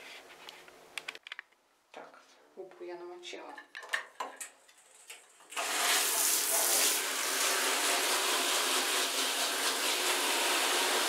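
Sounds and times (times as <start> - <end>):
shower spraying water on screen: 5.5 - 11.0.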